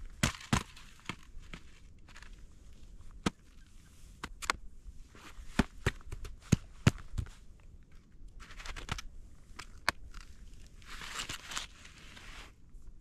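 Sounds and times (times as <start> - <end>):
sled knocks and clicks: 0.0 - 2.4.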